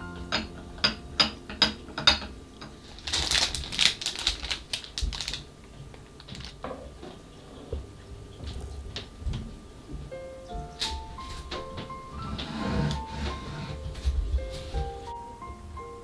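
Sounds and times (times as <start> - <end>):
plastic bag crinkling: 2.8 - 6.6.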